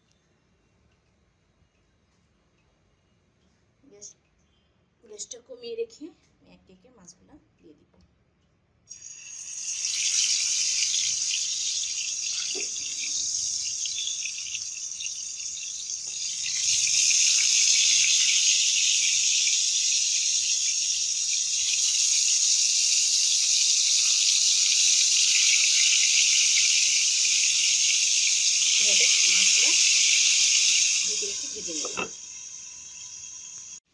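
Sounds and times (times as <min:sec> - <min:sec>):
fish sizzling in hot oil: 0:08.9 - 0:33.9.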